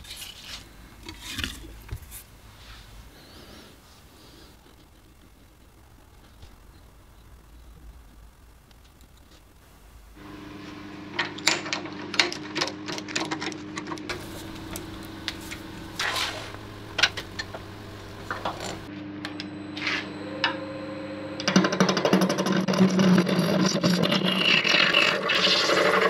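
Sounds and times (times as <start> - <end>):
lathe hum: 10.2 - 22.3
lathe gouge scraping wood: 14.1 - 18.9.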